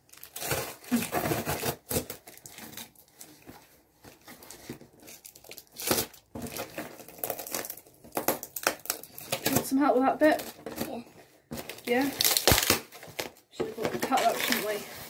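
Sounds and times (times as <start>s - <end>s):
packaging being torn and crinkled: 0.0s - 3.4s, 4.9s - 9.7s, 11.6s - 13.5s, 14.2s - 14.8s.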